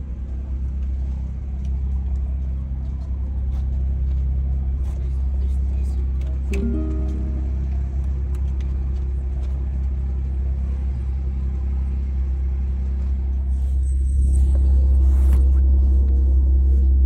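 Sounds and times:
faint even hum: 0:06.5 - 0:08.2.

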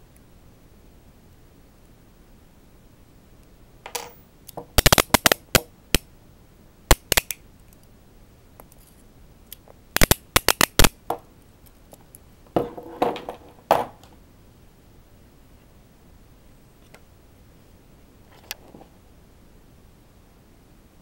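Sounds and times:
handcuffs ratcheting clicks: 0:06.9 - 0:07.4.

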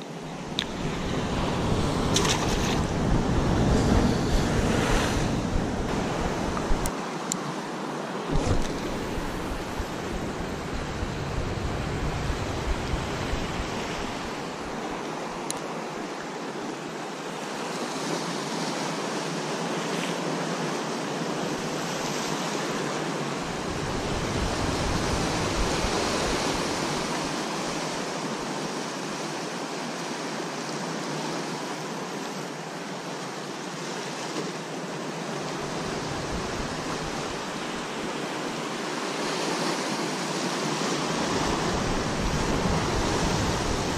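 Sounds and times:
surf breaking against rocks: 0:08.3 - 0:14.4.

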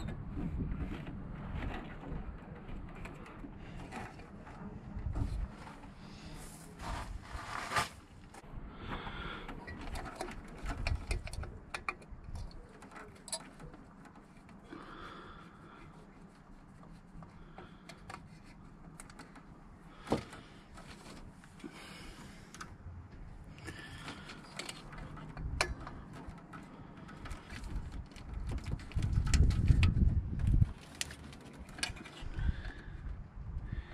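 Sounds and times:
screwdriver clicks and metallic taps: 0:09.6 - 0:14.6, 0:24.3 - 0:30.0.

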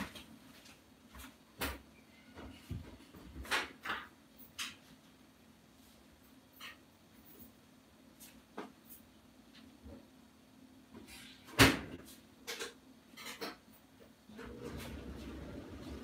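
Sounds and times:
kitchen knocks and clicks: 0:11.6 - 0:13.7.

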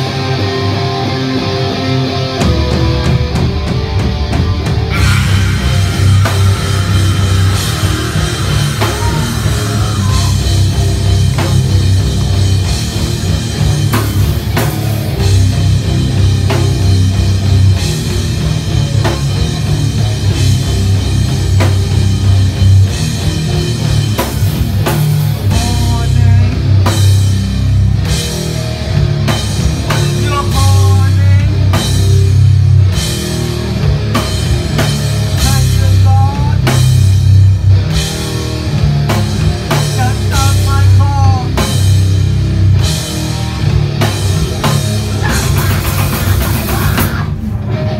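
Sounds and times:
bass guitar: 0:00.0 - 0:47.9
drum kit: 0:00.0 - 0:47.9
electric guitar: 0:00.0 - 0:47.9.

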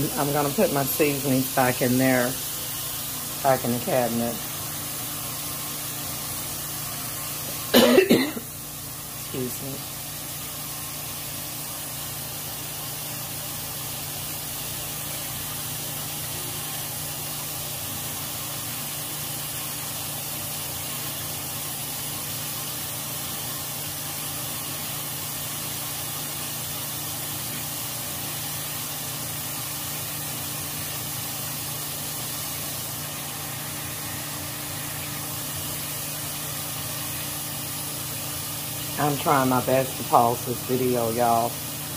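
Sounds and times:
chicken deep-frying in oil: 0:00.0 - 0:07.8, 0:08.4 - 0:41.9.

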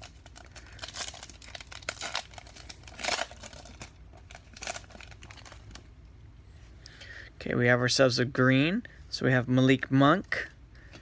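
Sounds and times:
foil wrapper tearing and crinkling: 0:00.0 - 0:05.8.

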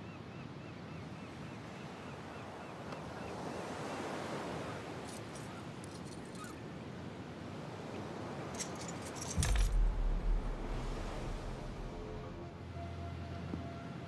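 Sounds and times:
ocean surf washing in: 0:09.4 - 0:12.6.

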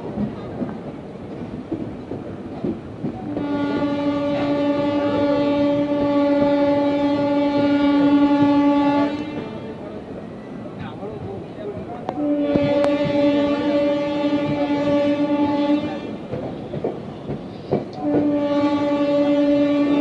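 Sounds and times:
train wheels rumbling on rails: 0:00.0 - 0:20.0
train horn blast: 0:03.2 - 0:09.8, 0:12.1 - 0:16.3, 0:18.0 - 0:20.0.

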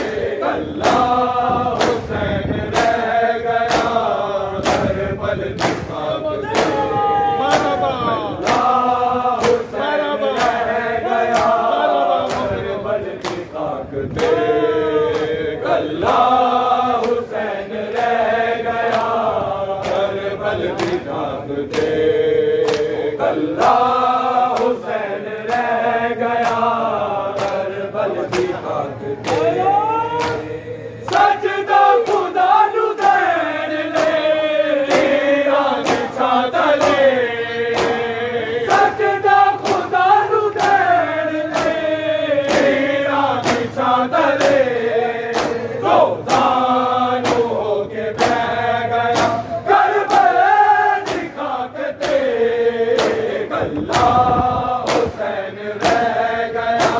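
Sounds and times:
men chanting in unison: 0:00.0 - 0:56.9
hand slaps on bare chests: 0:01.7 - 0:02.1, 0:02.7 - 0:03.0, 0:03.6 - 0:04.9, 0:05.6 - 0:06.8, 0:08.4 - 0:08.8, 0:09.4 - 0:09.7, 0:10.4 - 0:10.7, 0:11.3 - 0:12.5, 0:13.2 - 0:13.6, 0:18.9 - 0:19.2, 0:19.8 - 0:20.1, 0:20.8 - 0:21.0, 0:22.6 - 0:23.0, 0:26.4 - 0:26.8, 0:27.4 - 0:27.7, 0:29.2 - 0:29.6, 0:30.2 - 0:30.5, 0:34.0 - 0:34.2, 0:34.9 - 0:35.2, 0:35.8 - 0:36.1, 0:36.8 - 0:37.1, 0:39.6 - 0:40.9, 0:41.5 - 0:41.8, 0:42.4 - 0:42.8, 0:43.4 - 0:43.7, 0:45.3 - 0:45.7, 0:47.2 - 0:47.6, 0:48.2 - 0:48.5, 0:49.1 - 0:49.5, 0:51.0 - 0:51.4, 0:52.0 - 0:52.3, 0:52.9 - 0:53.3, 0:53.9 - 0:55.2, 0:55.8 - 0:56.2.

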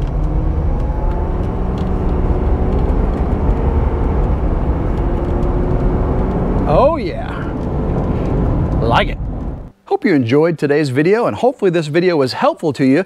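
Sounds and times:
diesel truck engine accelerating: 0:00.0 - 0:09.7
road noise: 0:00.0 - 0:09.8.

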